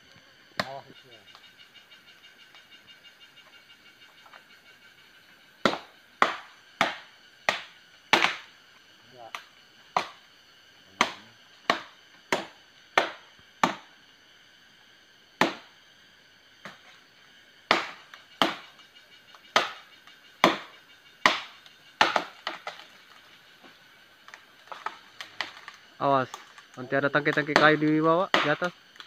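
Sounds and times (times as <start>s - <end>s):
machete chopping wood: 0.6s - 0.8s, 5.6s - 8.5s, 9.3s - 10.2s, 11.0s - 13.9s, 15.4s - 15.7s, 17.7s - 18.7s, 19.5s - 19.8s, 20.4s - 22.8s, 27.3s - 28.7s.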